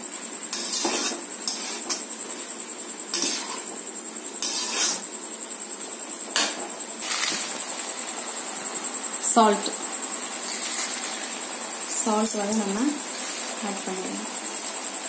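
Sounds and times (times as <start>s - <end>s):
metal spoon scraping a pot: 0.5s - 2.0s, 3.1s - 3.7s, 4.4s - 5.1s.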